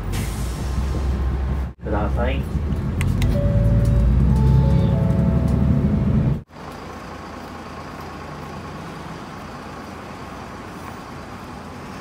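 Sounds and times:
bus engine and cabin noise: 0.0 - 12.0
street and traffic noise: 0.0 - 12.0.

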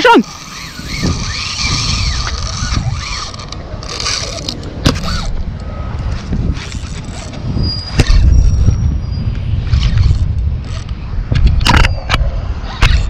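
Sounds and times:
fishing reel whirring: 0.0 - 5.3, 6.5 - 8.8, 9.7 - 10.9
rod and reel rattling: 0.0 - 5.3, 6.2 - 8.8.

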